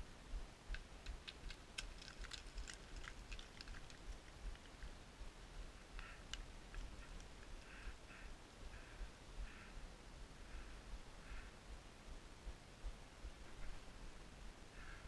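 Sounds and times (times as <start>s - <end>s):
stones clicking together: 0.7s - 4.9s, 6.0s - 7.5s.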